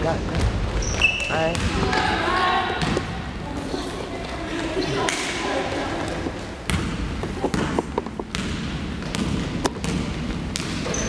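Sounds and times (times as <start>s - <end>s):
basketball bouncing on wooden floor: 0.3s - 2.0s, 6.7s - 11.0s.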